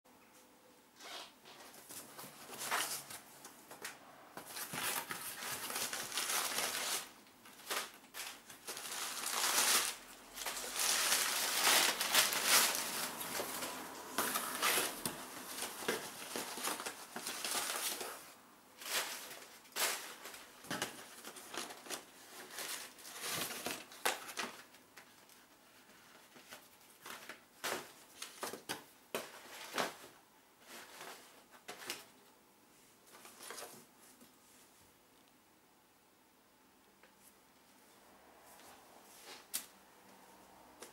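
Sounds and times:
cardboard rustling and crumpling: 0:01.5 - 0:32.2.

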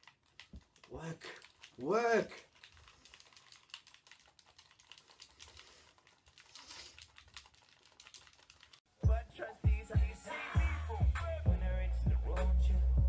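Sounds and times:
loud music with heavy bass beat: 0:09.0 - 0:13.0.

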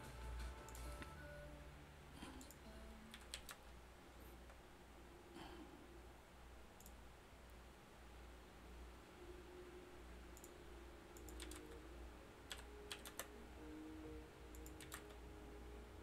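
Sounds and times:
soft background music: 0:00.0 - 0:03.5, 0:08.6 - 0:16.0
low hum: 0:00.0 - 0:16.0
keyboard and mouse clicks: 0:02.2 - 0:03.6, 0:06.8 - 0:07.0, 0:10.3 - 0:11.8, 0:12.5 - 0:13.3, 0:14.5 - 0:15.2.

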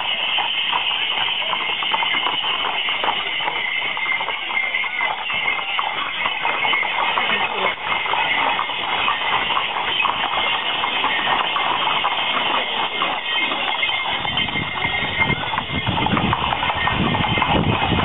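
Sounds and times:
horses hooves clip-clopping: 0:00.0 - 0:18.0.

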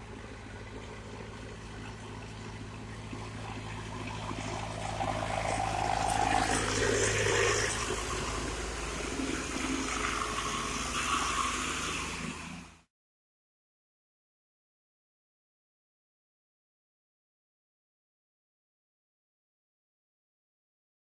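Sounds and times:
tractor diesel engines passing: 0:00.0 - 0:12.9
car passing: 0:00.6 - 0:12.9.

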